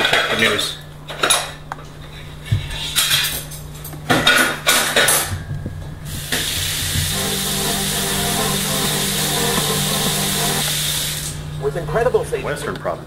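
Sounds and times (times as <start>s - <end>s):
tv hiss: 6.1s - 11.5s
tv broadcast sound: 6.3s - 13.0s.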